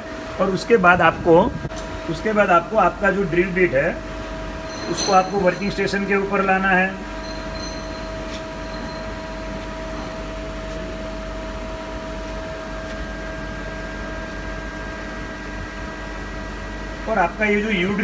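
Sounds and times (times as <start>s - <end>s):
faint whining tones: 4.1s - 12.0s.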